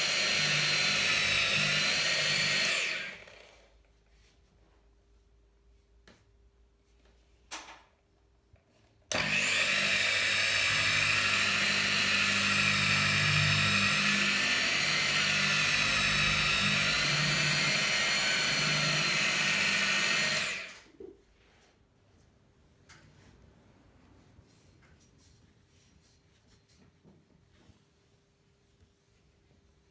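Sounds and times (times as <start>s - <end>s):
electric car polisher running: 0.0s - 3.7s, 9.1s - 20.8s.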